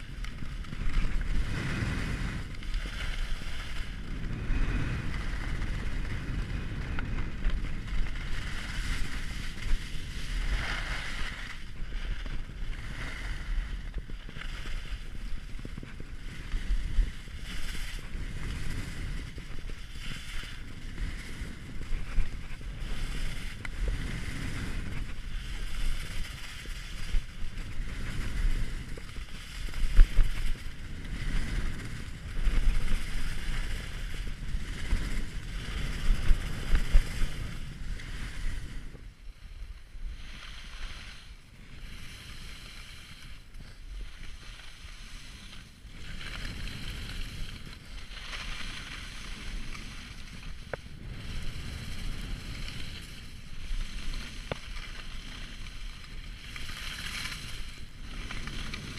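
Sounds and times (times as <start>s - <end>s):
skis sliding on snow: 0.0s - 58.9s
wind rushing over microphone: 0.0s - 58.9s.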